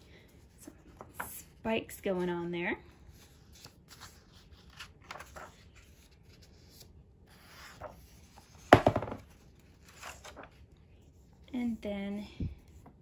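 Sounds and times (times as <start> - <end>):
book pages turning: 3.1 - 11.1.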